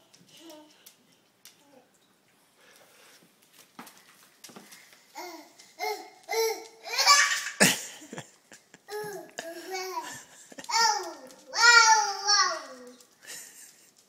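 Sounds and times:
toddler babbling and squealing: 10.7s - 13.0s.

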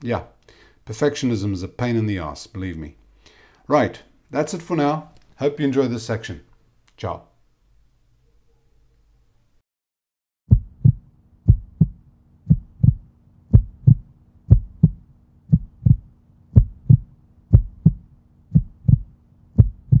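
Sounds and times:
faint steady hum: 0.0s - 9.6s, 10.5s - 20.0s
heartbeat thumps: 10.5s - 20.0s.

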